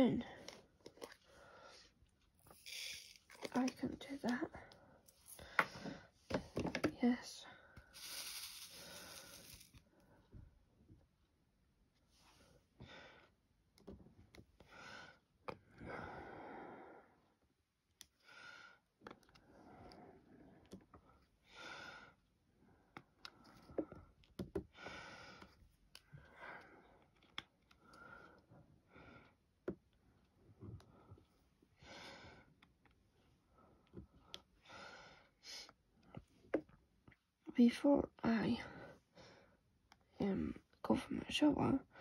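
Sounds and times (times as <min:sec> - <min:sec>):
quiet breathing: 0:00.2 - 0:03.1, 0:04.0 - 0:10.4, 0:14.6 - 0:17.5, 0:18.1 - 0:36.4, 0:38.5 - 0:40.2.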